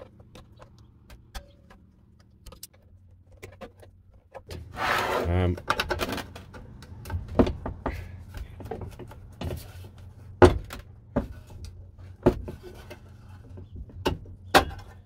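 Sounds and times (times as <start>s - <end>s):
metal knocks and clunks: 5.5s - 15.0s.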